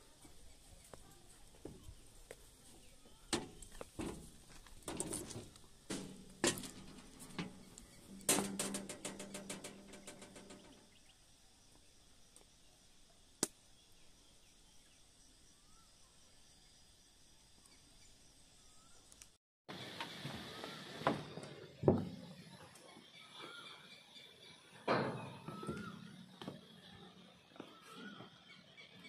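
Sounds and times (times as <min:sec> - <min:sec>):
footsteps on bridge walkway: 0:00.2 - 0:08.0, 0:25.6 - 0:28.6
rattling ticks: 0:04.6 - 0:11.0
faint bird chirps: 0:13.7 - 0:29.0.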